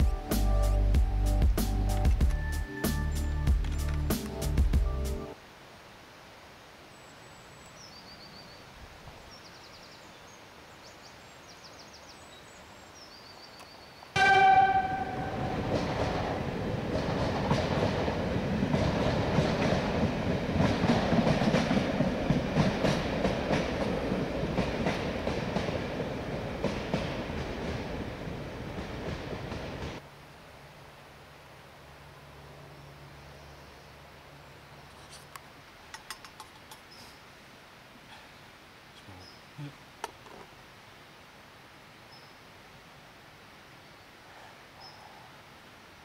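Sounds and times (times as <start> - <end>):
train horn blast: 14.2 - 16.6
train wheels clattering: 14.2 - 30.0
faint bird chirps: 44.0 - 45.4.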